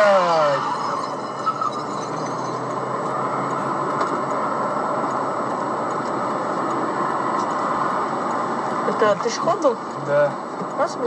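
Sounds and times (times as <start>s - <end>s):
faint high whine: 0.0s - 3.4s.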